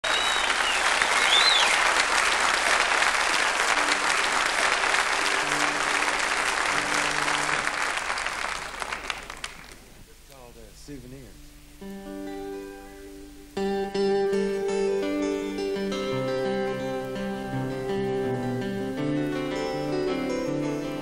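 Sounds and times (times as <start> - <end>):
whistle: 0.0 - 1.8
audience applauding: 0.0 - 9.9.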